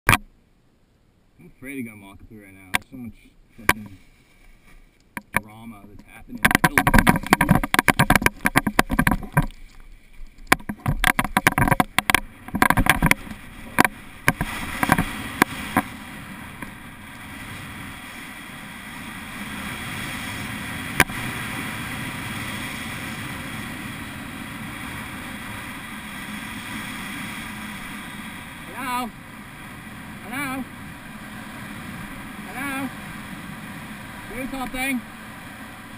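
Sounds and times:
wind buffeting microphone: 0:06.0 - 0:09.6
knocks and flapping: 0:06.0 - 0:15.9.

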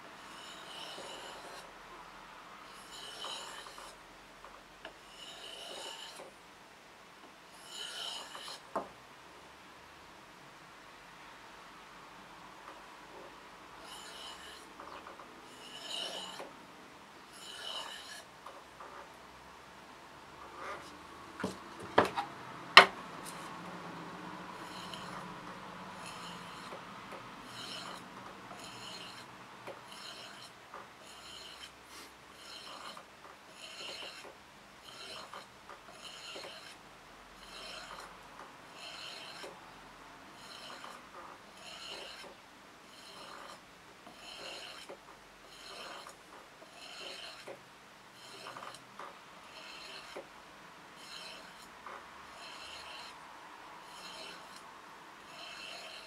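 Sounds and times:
knife scraping on sharpening bar: 0:00.2 - 0:01.7, 0:02.7 - 0:04.0, 0:05.0 - 0:06.3, 0:07.6 - 0:08.7, 0:13.8 - 0:16.5, 0:17.3 - 0:19.0, 0:20.4 - 0:23.5, 0:24.6 - 0:25.4, 0:26.0 - 0:26.8, 0:27.4 - 0:36.8, 0:37.4 - 0:39.6, 0:40.4 - 0:47.6, 0:48.2 - 0:50.3, 0:51.0 - 0:53.2, 0:53.8 - 0:56.0.

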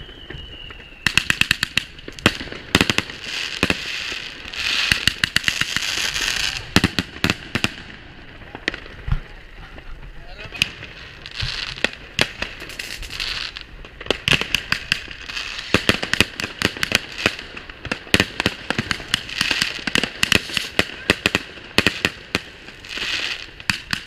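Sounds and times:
fireworks bangs and crackles: 0:00.0 - 0:24.0.

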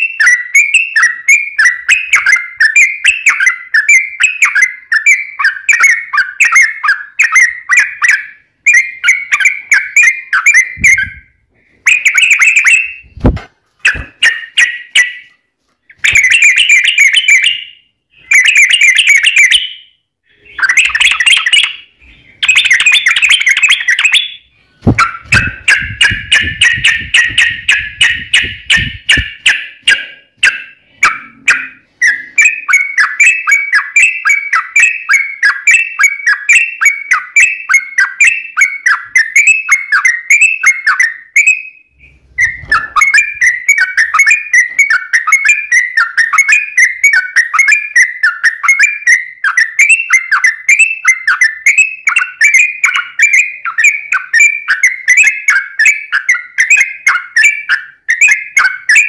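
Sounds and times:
bird chattering song: 0:00.0 - 0:59.0
low thuds: 0:13.0 - 0:14.2, 0:24.8 - 0:29.4.

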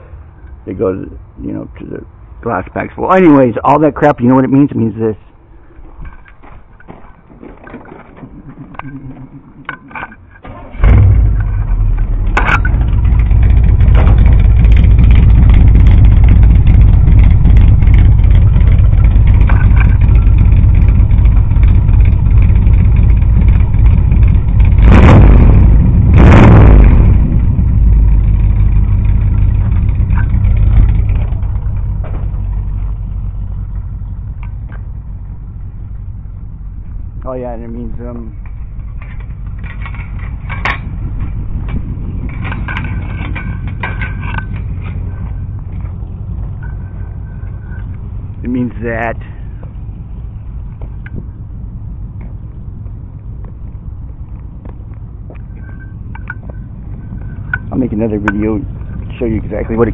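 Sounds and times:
engine starting and idling: 0:07.4 - 0:33.4
engine revving: 0:10.5 - 0:33.8, 0:55.6 - 0:59.9.

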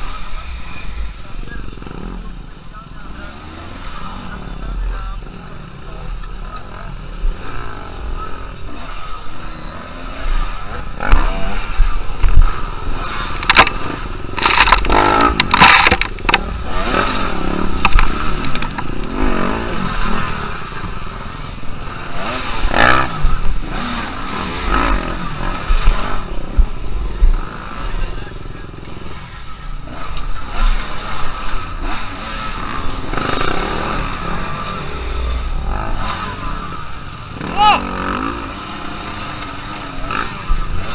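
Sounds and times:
dirt bike engines revving: 0:00.0 - 0:40.9
scraping and clatter on rocks: 0:13.3 - 0:17.0, 0:17.8 - 0:18.9.

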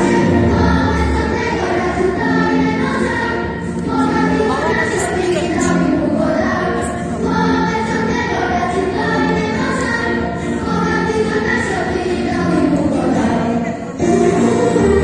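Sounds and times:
children's choir singing: 0:00.0 - 0:15.0
musical accompaniment: 0:00.0 - 0:15.0.

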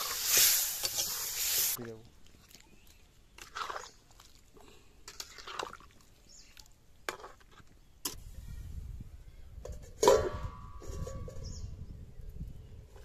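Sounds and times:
metal spatula scraping pan: 0:00.0 - 0:01.8.

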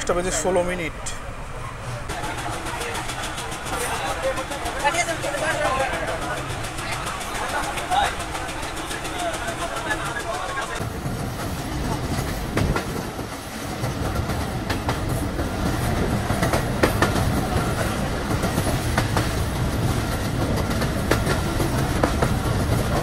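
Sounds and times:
train rumbling: 0:00.0 - 0:23.0
wheels clicking over rail joints: 0:01.0 - 0:23.0.

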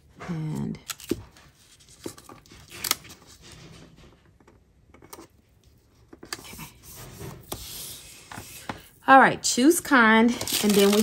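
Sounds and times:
paper rustling: 0:10.2 - 0:11.0.

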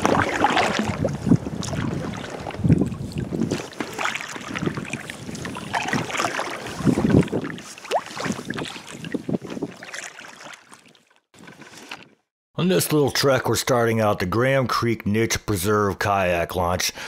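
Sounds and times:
wind on microphone: 0:00.0 - 0:09.9
paddles splashing in water: 0:00.0 - 0:12.2.

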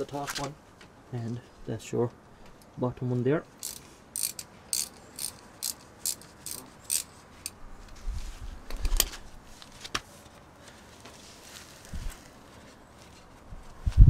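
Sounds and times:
socket ratchet clicking: 0:03.6 - 0:07.6.

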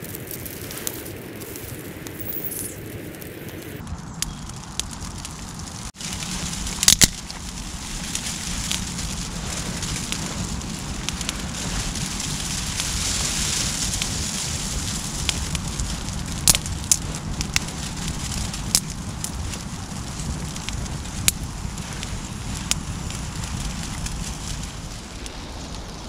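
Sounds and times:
campfire crackling and popping: 0:00.0 - 0:26.0.

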